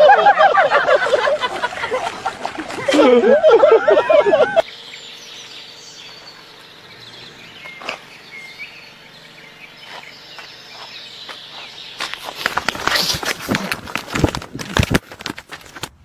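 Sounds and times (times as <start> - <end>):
rapid crackling or rustling: 11.5 - 16.0.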